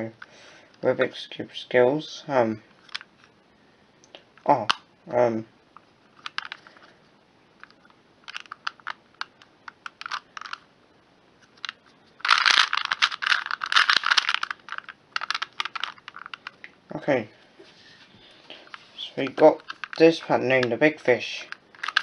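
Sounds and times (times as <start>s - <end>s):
puzzle cube clicking: 7.6s - 10.6s, 11.5s - 16.7s, 21.5s - 22.0s.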